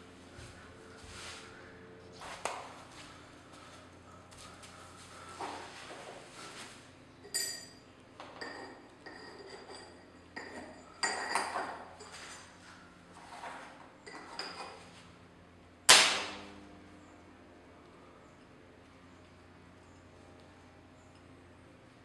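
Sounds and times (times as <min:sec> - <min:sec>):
faint low hum: 0:00.0 - 0:22.0
metal lugs clinking on plate: 0:07.2 - 0:12.6, 0:14.0 - 0:14.8.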